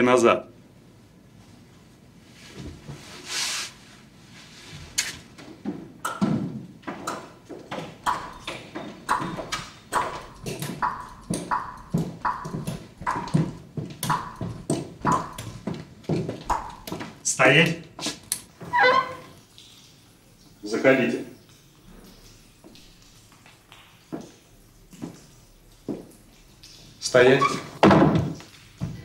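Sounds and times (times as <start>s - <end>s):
footsteps on hard floor: 7.5s - 17.2s, 27.9s - 29.0s.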